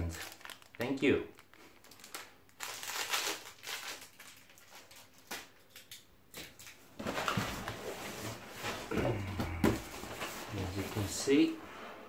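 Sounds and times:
cardboard box rustling and scraping: 0:07.0 - 0:11.2.

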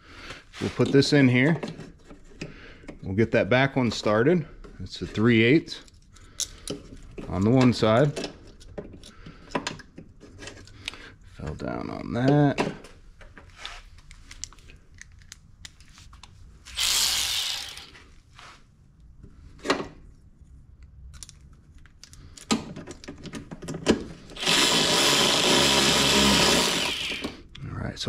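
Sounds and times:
electric ratchet running: 0:16.7 - 0:18.0, 0:24.4 - 0:27.4
tool clicks and rattles: 0:16.7 - 0:18.0, 0:21.1 - 0:27.4.

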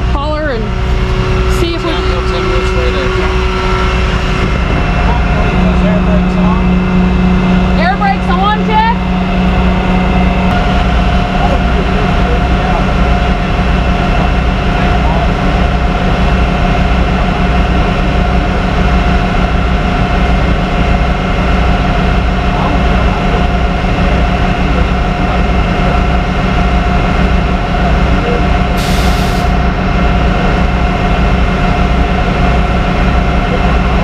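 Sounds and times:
truck engine running: 0:00.0 - 0:34.0
brief hiss: 0:28.8 - 0:29.5.

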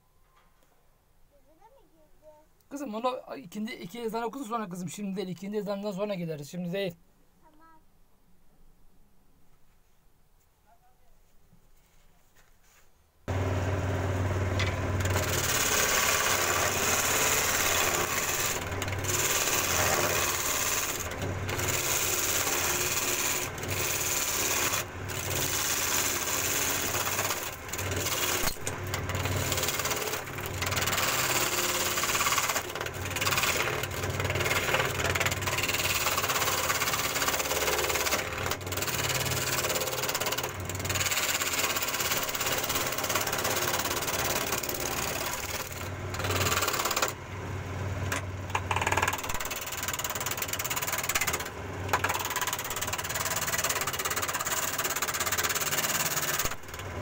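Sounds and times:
electric power tool cutting wood: 0:13.3 - 0:47.2, 0:48.5 - 0:57.0.

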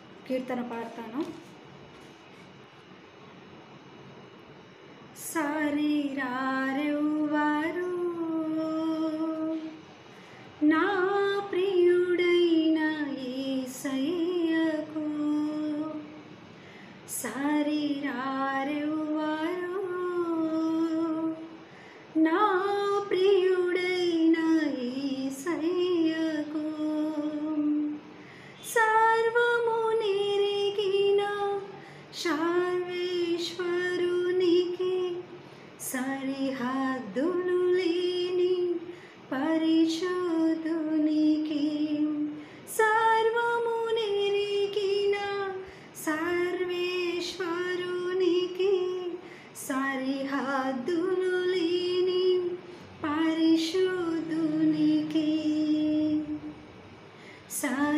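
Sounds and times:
woman singing a hymn: 0:05.2 - 0:09.8, 0:10.6 - 0:16.2, 0:17.1 - 0:56.6, 0:57.5 - 0:57.9.

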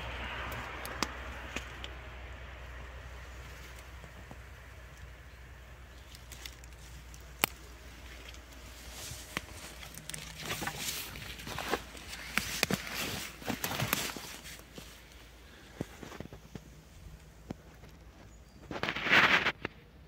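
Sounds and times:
footsteps on dry leaves: 0:05.9 - 0:16.9.

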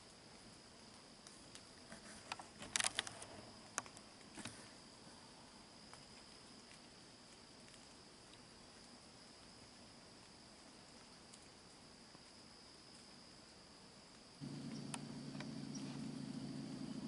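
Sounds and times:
crickets trilling: 0:00.0 - 0:17.0
rustles: 0:00.0 - 0:17.0
sharp clicks: 0:14.5 - 0:15.5.

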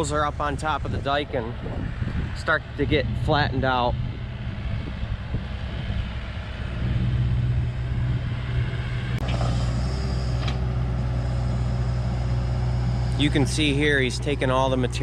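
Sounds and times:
excavator diesel engine: 0:00.0 - 0:15.0.

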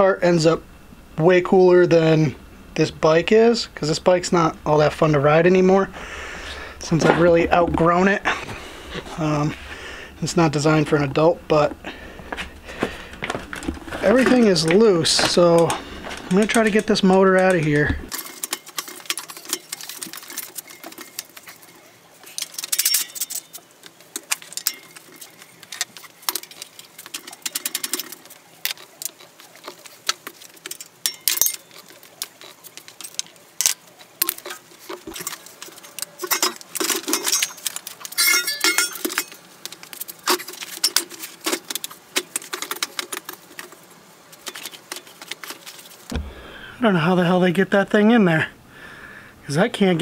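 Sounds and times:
metal parts clanking and rattling: 0:13.1 - 0:43.8.

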